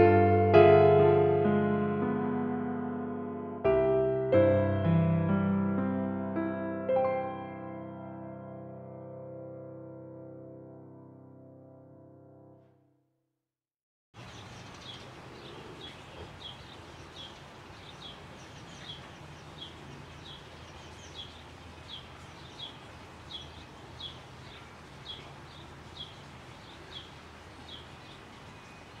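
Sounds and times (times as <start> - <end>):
background hiss: 14.2 - 29.0
small bird chirping: 14.2 - 29.0.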